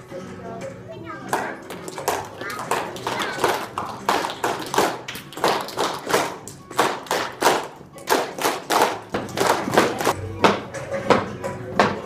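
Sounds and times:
faint music: 0.0 - 12.0
sharp claps and taps: 1.3 - 10.6.

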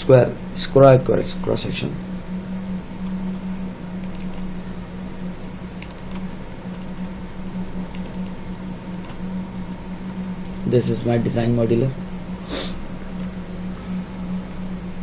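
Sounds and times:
steady low hum: 0.0 - 15.0
computer clicks: 4.0 - 4.5, 5.8 - 6.8, 7.9 - 9.2, 13.1 - 13.3.

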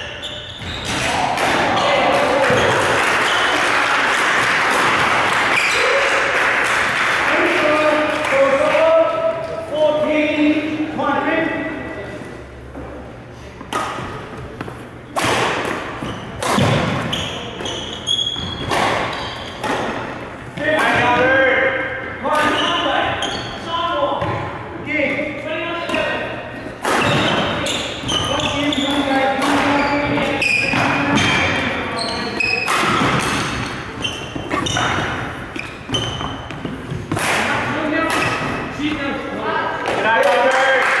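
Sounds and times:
shoes squeaking on court floor: 0.0 - 1.2, 1.8 - 3.7, 12.9 - 21.2, 22.3 - 24.5, 26.5 - 37.2
rackets hitting shuttlecock: 0.7 - 2.9, 13.6 - 21.3, 25.9 - 38.7
knocks and thuds echoing: 15.2 - 17.1, 32.7 - 38.7.

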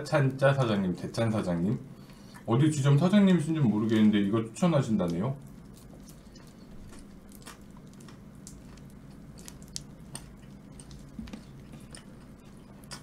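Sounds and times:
chewing crispy fried chicken: 1.6 - 13.0
small clicks and crunches: 5.0 - 13.0.

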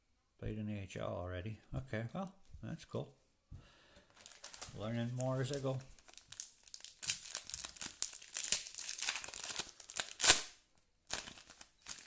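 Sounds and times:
foil wrapper crinkling and tearing: 4.2 - 12.0.

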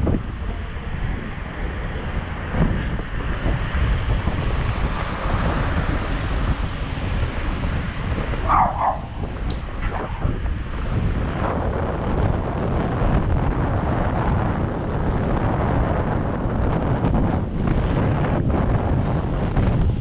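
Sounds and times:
wind buffeting microphone: 0.0 - 20.0
dog barking: 8.4 - 10.1.

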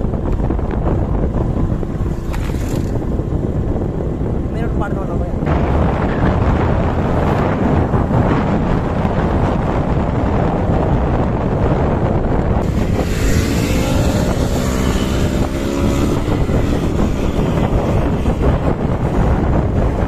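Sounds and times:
wind buffeting microphone: 0.0 - 20.0
motorcycle engine accelerating: 5.4 - 20.0.

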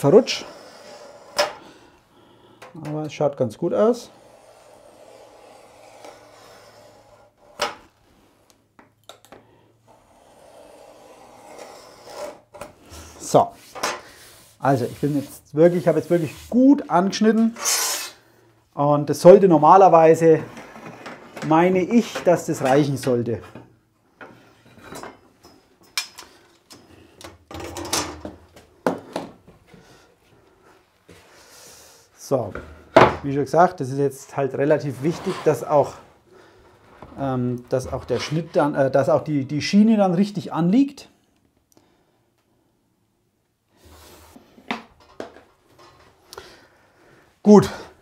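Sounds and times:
utility knife scraping laminate: 0.2 - 1.6, 4.0 - 7.9, 9.8 - 16.6, 17.6 - 18.2.

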